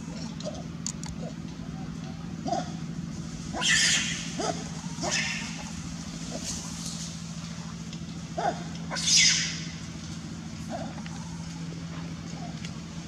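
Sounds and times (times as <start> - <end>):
steady low hum: 0.0 - 13.0
monkeys screaming: 3.4 - 7.0, 8.4 - 9.9
low monkey calls: 3.4 - 7.1, 8.4 - 10.0.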